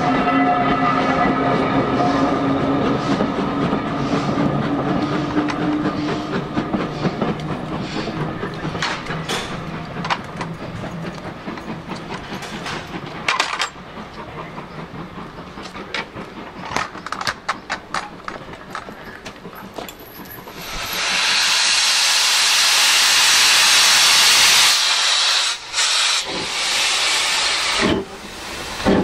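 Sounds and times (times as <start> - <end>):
train wheels rumbling: 0.0 - 29.0
clicks and clanks of running gear: 15.6 - 20.5.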